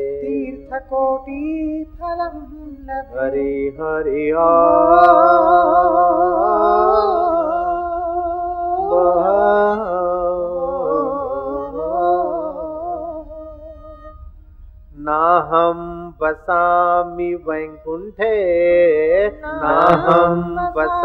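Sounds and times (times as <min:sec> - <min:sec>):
man chanting: 0:15.0 - 0:21.0.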